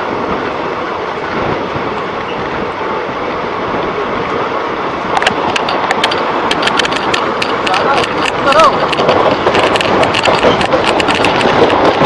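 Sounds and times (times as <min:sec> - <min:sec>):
train wheels on rails and wind: 0:00.0 - 0:12.0
sharp clicks: 0:05.2 - 0:12.0.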